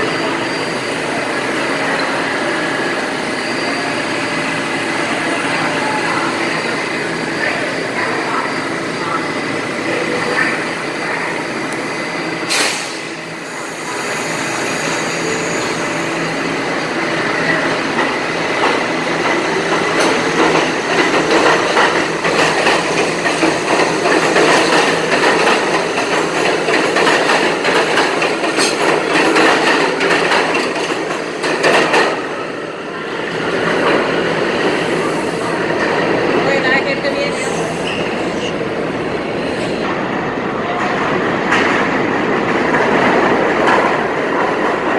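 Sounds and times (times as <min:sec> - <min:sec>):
subway train passing: 0:00.0 - 0:44.9
wheels clattering over rails: 0:17.4 - 0:32.4.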